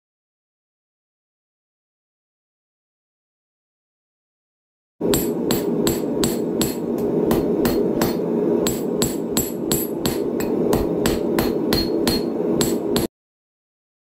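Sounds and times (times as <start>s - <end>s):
hammer striking steel on anvil: 5.0s - 13.1s
steady rushing noise: 5.0s - 13.1s.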